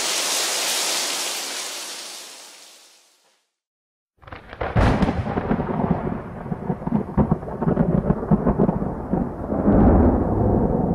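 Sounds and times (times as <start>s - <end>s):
thunder crack and rumble: 4.2s - 10.9s.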